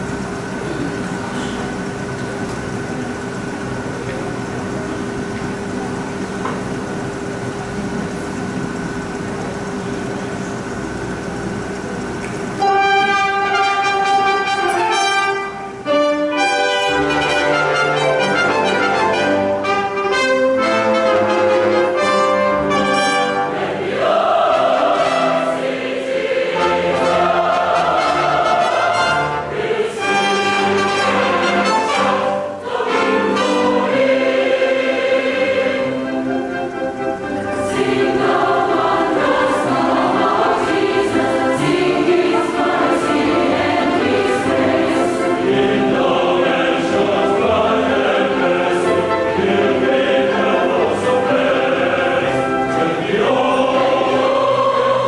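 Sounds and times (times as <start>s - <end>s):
instrumental accompaniment: 12.6s - 55.0s
large mixed choir singing: 12.6s - 55.0s.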